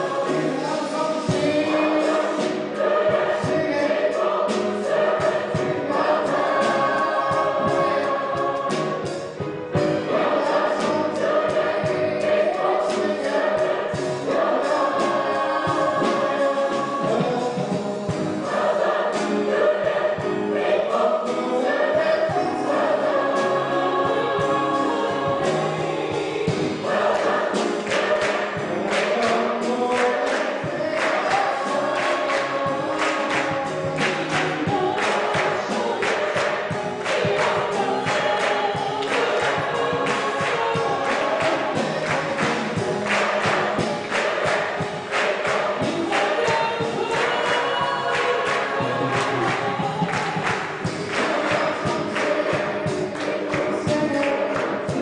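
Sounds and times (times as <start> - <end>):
mixed choir singing: 0.0 - 55.0
man singing into microphone: 16.0 - 18.5, 48.8 - 50.1
people clapping hands: 26.8 - 55.0.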